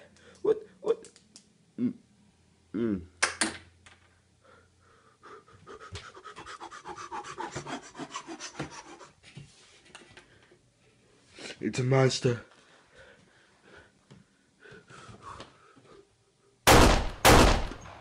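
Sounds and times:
person panting: 0:04.4 - 0:09.2, 0:12.7 - 0:16.2.

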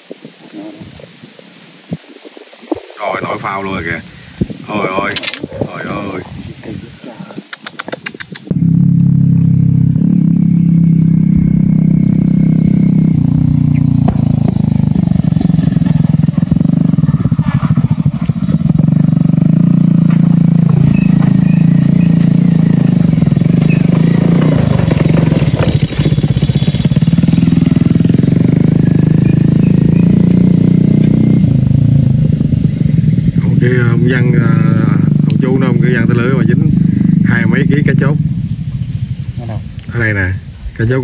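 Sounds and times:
small engine humming: 0:08.4 - 0:39.9.

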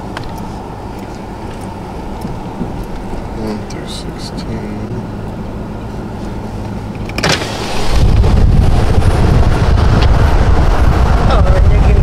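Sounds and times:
car cabin low hum: 0:00.0 - 0:12.0
wind buffeting microphone: 0:01.8 - 0:03.4, 0:07.4 - 0:12.0.

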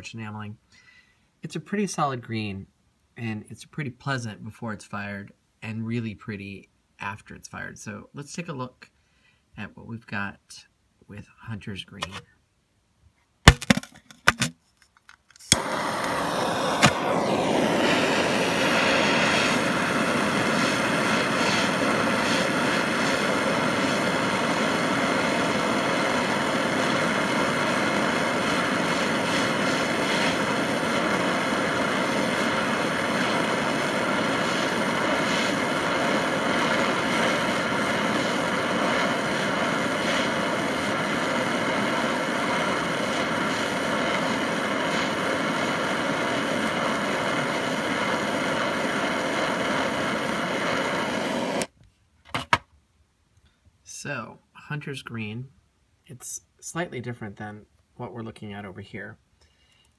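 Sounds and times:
gas torch flame burning: 0:15.4 - 0:51.7.

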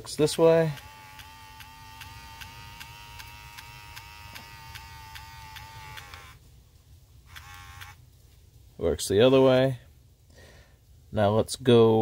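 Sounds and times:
small electric motor whining: 0:00.2 - 0:06.4, 0:07.3 - 0:08.0.

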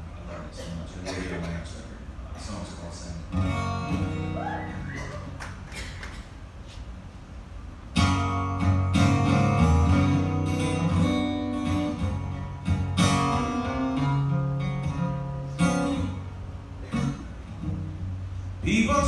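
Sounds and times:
acoustic guitar strummed chords: 0:03.3 - 0:05.3, 0:07.9 - 0:19.0.

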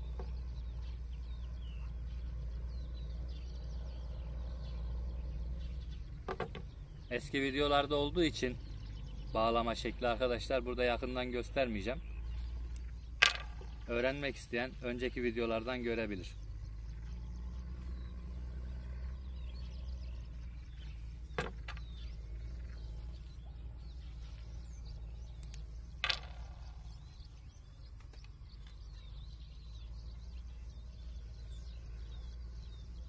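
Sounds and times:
faint bird chirps: 0:00.0 - 0:33.0
sharp clicks: 0:25.3 - 0:26.6.

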